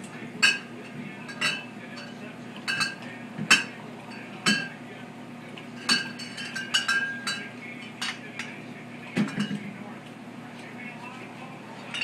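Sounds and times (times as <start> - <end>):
low steady hum: 0.0 - 12.0
clinks against metal tray: 0.4 - 4.8, 5.7 - 8.6, 9.2 - 9.7.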